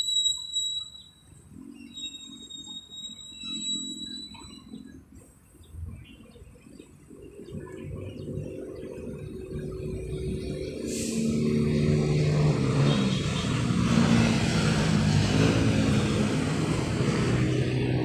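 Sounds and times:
engine running: 0:07.5 - 0:18.0.

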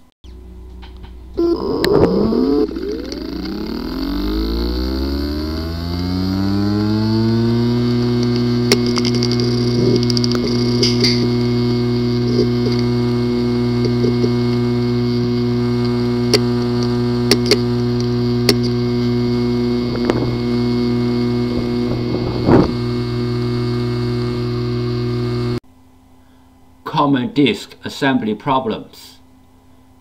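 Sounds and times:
hard drive humming: 0:00.0 - 0:25.6
hard drive clicking: 0:01.8 - 0:25.6.

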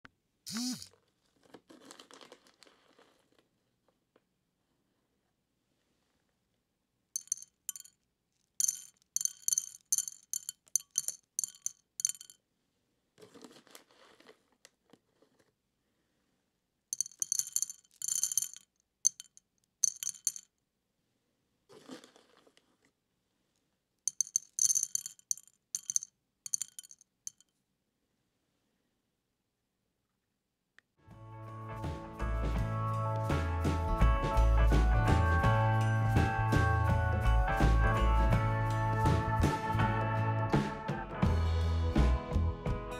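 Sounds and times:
dried beans rattling in ceramic dish: 0:07.2 - 0:12.4, 0:17.0 - 0:20.5, 0:24.1 - 0:27.4.

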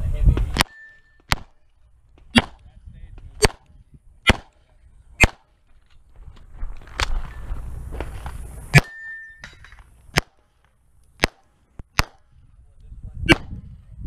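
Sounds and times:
pistol shots: 0:00.5 - 0:01.6, 0:02.3 - 0:02.6, 0:03.4 - 0:04.6, 0:05.2 - 0:05.5, 0:10.1 - 0:10.5, 0:11.2 - 0:12.3, 0:13.3 - 0:13.6.

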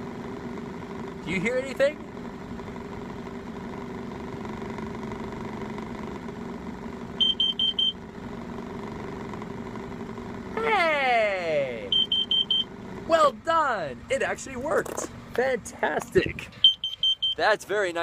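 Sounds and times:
car engine idling: 0:00.0 - 0:18.0
high-pitched alarm beeps: 0:07.2 - 0:08.0, 0:11.9 - 0:12.7, 0:16.6 - 0:17.5.

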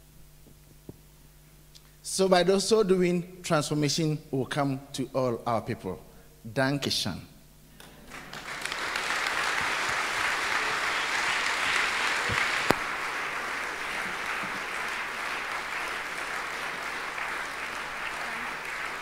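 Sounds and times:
audience applauding: 0:07.9 - 0:19.0.

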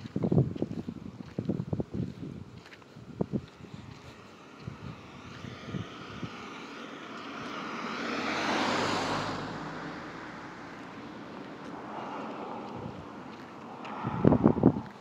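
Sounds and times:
vehicle passing by: 0:03.6 - 0:15.0.

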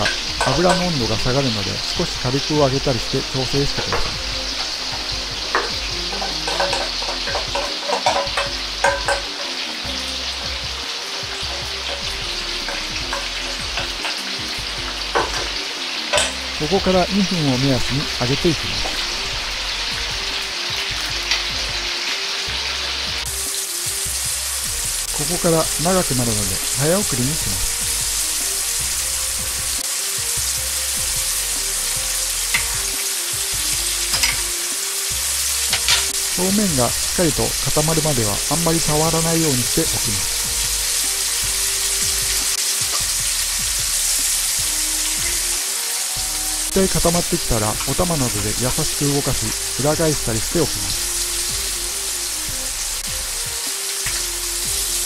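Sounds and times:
batter sizzling in hot oil: 0:00.0 - 0:55.0
small pop from frying oil: 0:06.5 - 0:09.4, 0:15.2 - 0:16.4, 0:32.5 - 0:32.9, 0:34.1 - 0:34.5, 0:35.7 - 0:36.2, 0:54.0 - 0:54.3.

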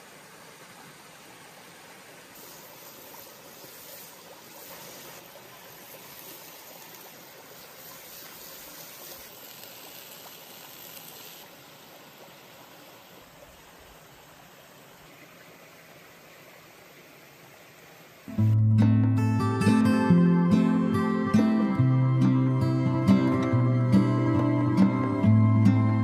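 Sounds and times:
stream water rushing: 0:00.0 - 0:18.6.

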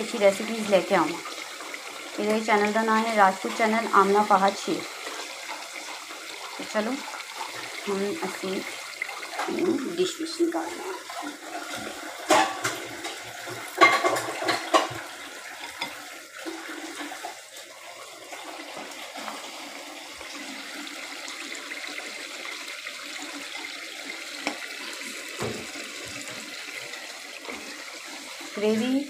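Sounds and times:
stove hissing: 0:00.0 - 0:29.0
spoon clinking on pot and plates: 0:12.3 - 0:13.2, 0:13.8 - 0:15.0.

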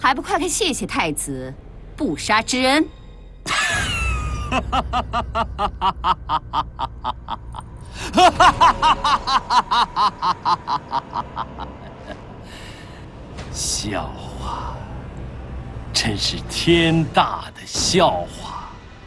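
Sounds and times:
man laughing mockingly: 0:03.5 - 0:12.2.

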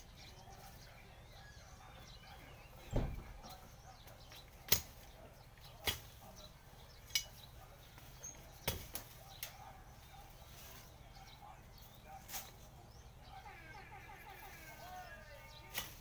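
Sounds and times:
machete chopping weeds: 0:04.7 - 0:05.1, 0:05.7 - 0:06.2, 0:08.6 - 0:09.5, 0:12.2 - 0:12.7, 0:15.7 - 0:16.0.

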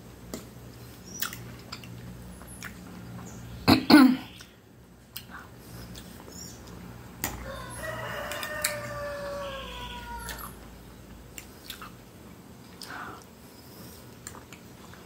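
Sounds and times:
rooster crowing: 0:07.4 - 0:10.6.

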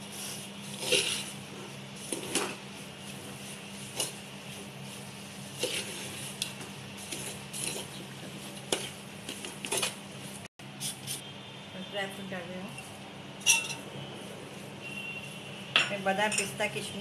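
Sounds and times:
metal spoon scraping a metal pot: 0:00.7 - 0:01.3.

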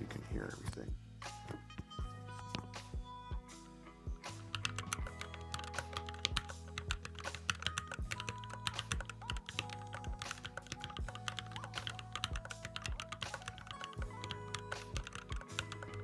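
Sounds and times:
mechanical keyboard typing: 0:04.5 - 0:16.0.

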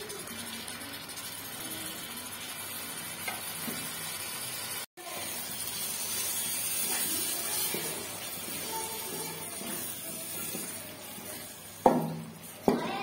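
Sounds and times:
food sizzling in hot oil: 0:00.0 - 0:13.0
wooden spatula stirring: 0:05.8 - 0:13.0.

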